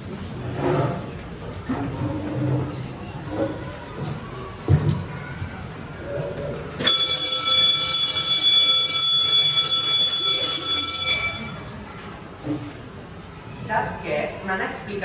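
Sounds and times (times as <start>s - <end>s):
electric bell ringing: 6.8s - 11.8s.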